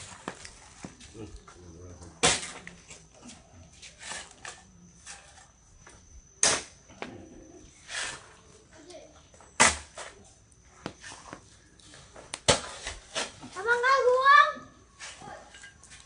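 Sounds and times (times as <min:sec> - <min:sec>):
wood fire crackling: 0:00.0 - 0:03.2, 0:10.4 - 0:14.3.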